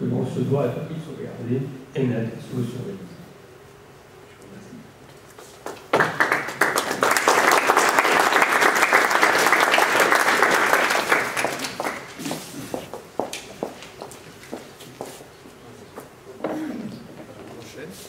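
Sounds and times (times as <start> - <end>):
audience applauding: 5.7 - 12.8.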